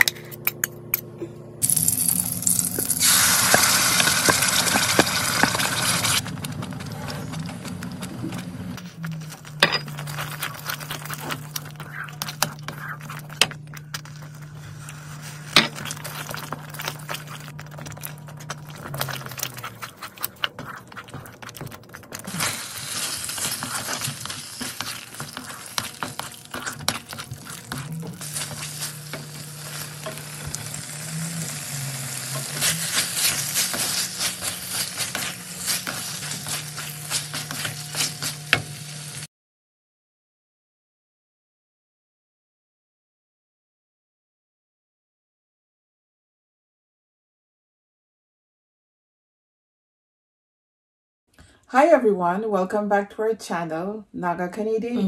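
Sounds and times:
paste sizzling in pan: 1.6s - 6.3s, 22.3s - 39.3s
spatula scraping pan: 3.0s - 7.7s, 14.2s - 39.2s.

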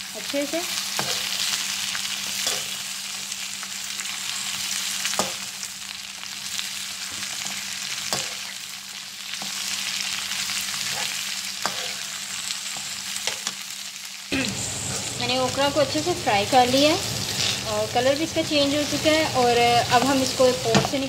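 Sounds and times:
vegetables sizzling in oil: 0.0s - 21.0s
metal spoon scraping pan: 10.9s - 12.1s.

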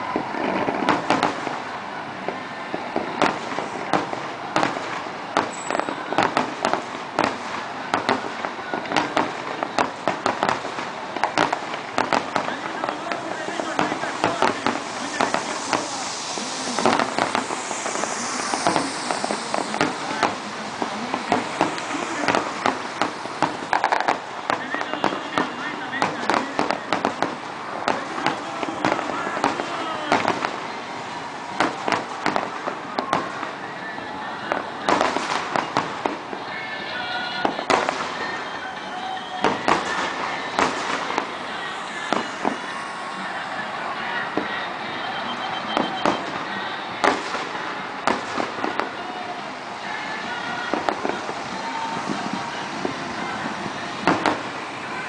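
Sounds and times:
fireworks bangs: 0.0s - 55.0s
fireworks crackling hiss: 0.0s - 55.0s
steady background din: 0.0s - 55.0s.

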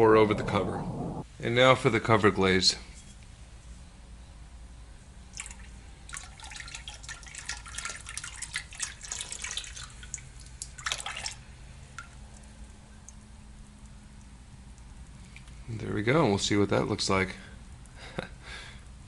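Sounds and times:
liquid dripping: 5.3s - 15.6s
liquid glaze pouring and splashing: 5.4s - 13.3s.

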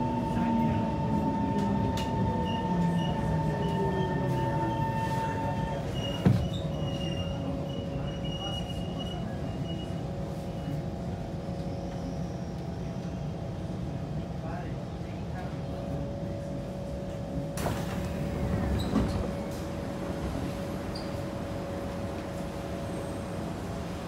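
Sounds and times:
metro train wheel and motor noise: 0.0s - 24.0s
faint wheel squeal: 20.9s - 21.3s.

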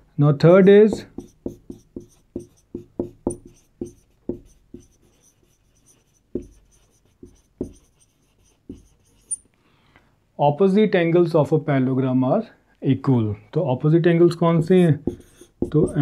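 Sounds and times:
marker writing on whiteboard: 0.9s - 9.4s, 14.6s - 16.0s.

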